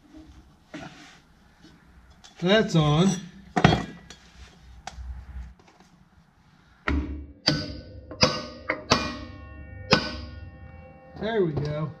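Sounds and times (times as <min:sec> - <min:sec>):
sharp metal knocks with ring: 0:06.9 - 0:09.3.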